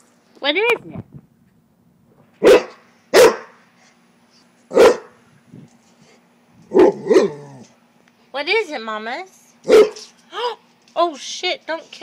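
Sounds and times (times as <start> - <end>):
dog barking: 2.4 - 3.6, 4.7 - 5.2, 6.7 - 7.4, 9.7 - 10.1.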